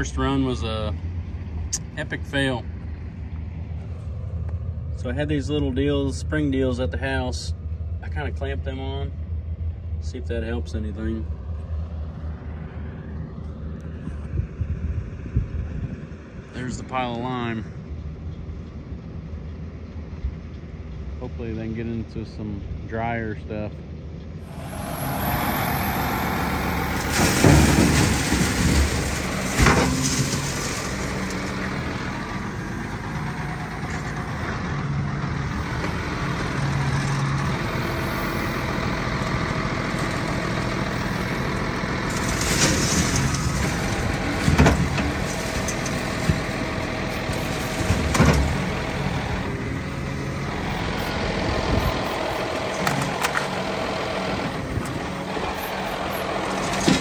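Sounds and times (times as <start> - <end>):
heavy vehicle engine running: 23.8 - 57.0
loud thumps and clanks: 26.9 - 30.8.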